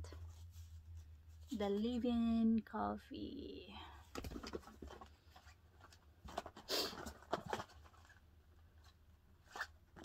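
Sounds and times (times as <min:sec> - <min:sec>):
faint low hum: 0:00.0 - 0:10.0
cardboard boxes rustling: 0:04.1 - 0:09.0.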